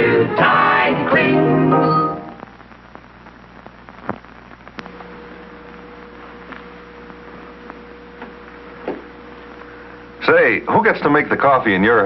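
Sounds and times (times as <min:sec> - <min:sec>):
film soundtrack hiss: 0:00.0 - 0:12.0
steady hum: 0:00.0 - 0:12.0
clicks and pops: 0:02.4 - 0:05.1.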